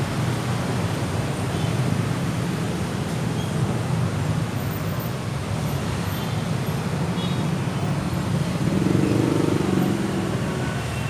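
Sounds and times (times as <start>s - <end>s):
road traffic: 0.0s - 11.0s.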